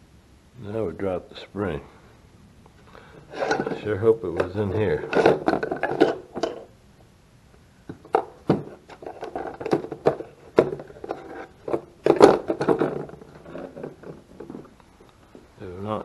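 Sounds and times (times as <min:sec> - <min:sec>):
small parts rattling in a plastic tray: 0:03.3 - 0:06.7, 0:08.0 - 0:14.8.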